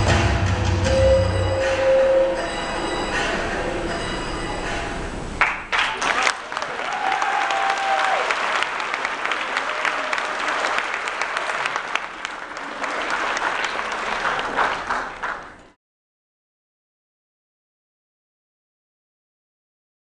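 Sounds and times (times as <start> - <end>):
audience applauding: 5.4 - 15.8.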